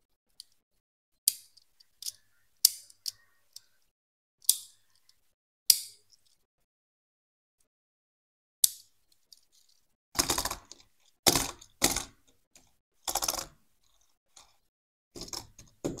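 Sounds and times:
toy car rattling on cardboard: 9.5 - 14.6, 15.2 - 16.0.

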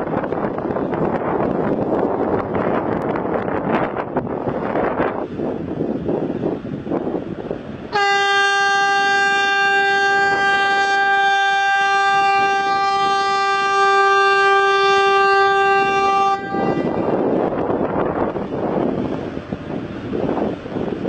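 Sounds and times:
wind buffeting microphone: 0.0 - 21.0
ship's horn long blast: 7.9 - 17.5.

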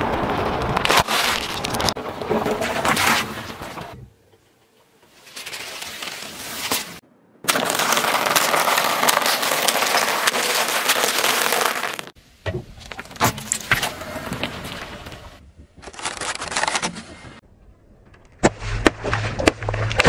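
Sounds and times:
tyre crushing ice-cream cones: 7.5 - 12.2.

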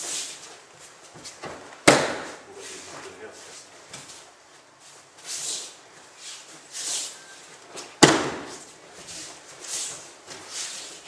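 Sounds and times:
feet moving across mat: 0.0 - 11.0
body slapping onto mat: 1.4 - 2.4, 8.0 - 8.7.

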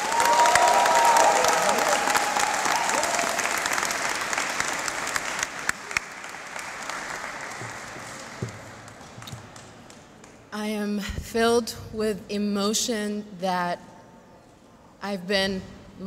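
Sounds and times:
group of people applauding: 0.0 - 10.5.

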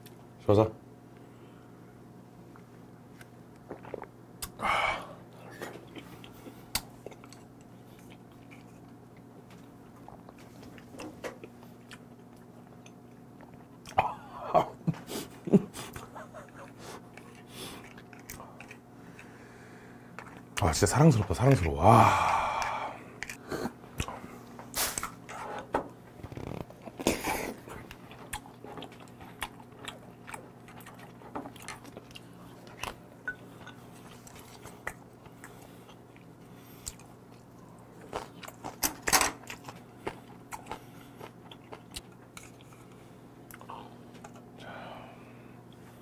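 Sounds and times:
chewing crab shells: 5.7 - 14.1, 15.8 - 20.7, 22.5 - 24.2, 26.2 - 44.6.

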